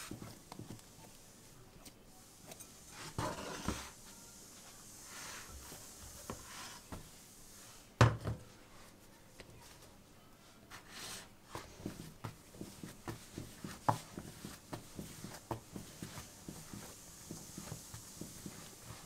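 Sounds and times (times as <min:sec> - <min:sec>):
soft knocks of kneading dough: 0:00.0 - 0:01.2, 0:10.7 - 0:19.0.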